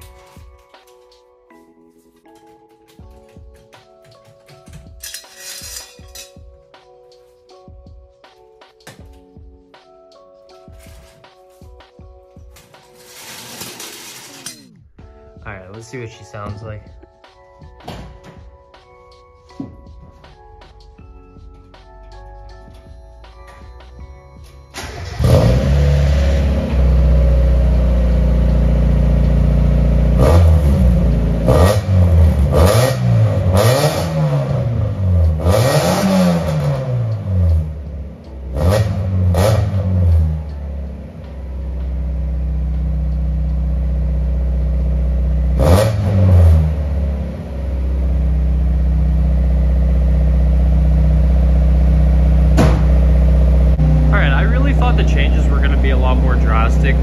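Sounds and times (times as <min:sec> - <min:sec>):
car engine idling and revving: 0:24.7 - 0:57.0
car engine starting: 0:24.7 - 0:57.0.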